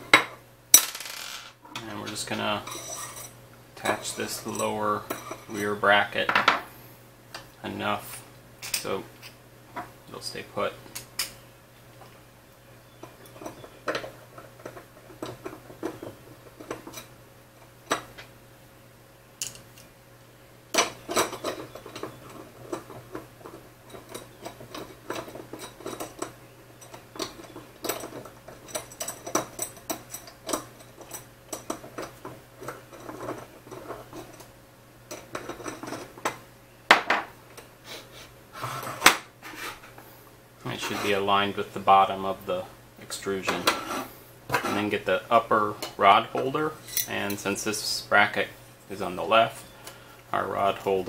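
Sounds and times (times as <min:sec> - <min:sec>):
metal screws clicking and scraping: 0:23.9 - 0:34.5.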